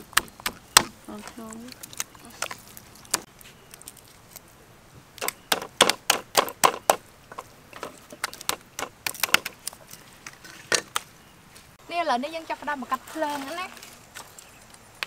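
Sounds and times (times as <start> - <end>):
cleaver chopping on wooden block: 5.2 - 7.0.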